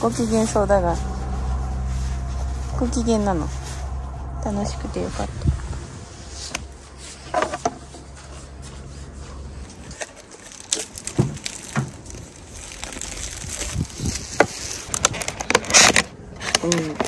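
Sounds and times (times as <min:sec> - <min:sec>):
low rumble: 0:00.0 - 0:15.1
plastic film crinkling: 0:09.6 - 0:17.0.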